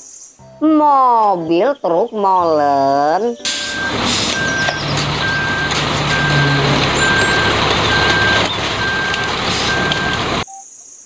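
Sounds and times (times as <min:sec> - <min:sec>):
truck engine running: 0:03.4 - 0:10.4
truck backup alarm beeping: 0:03.4 - 0:10.6.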